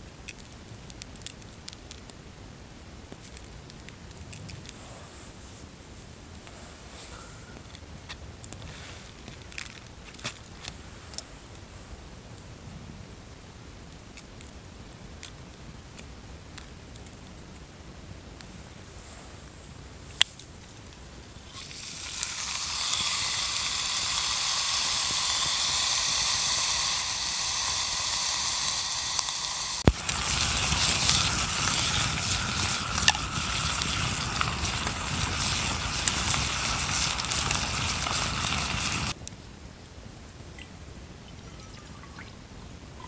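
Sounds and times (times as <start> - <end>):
fire crackling pops: 0.0 - 40.9
rush of flame: 0.3 - 12.0, 18.4 - 39.2
steak sizzling in a skillet: 21.4 - 39.2.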